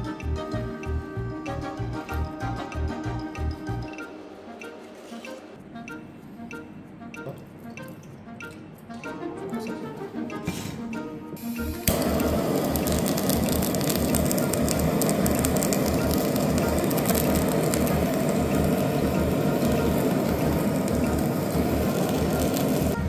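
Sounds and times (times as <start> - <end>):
blowtorch flame hissing: 11.4 - 23.0.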